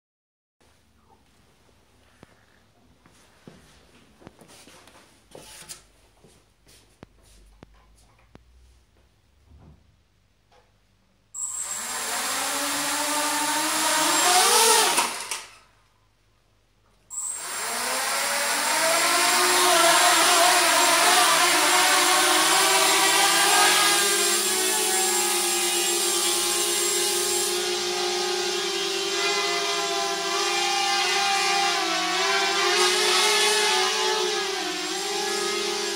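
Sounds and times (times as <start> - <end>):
drone motors whining: 11.4 - 15.5, 17.1 - 35.9.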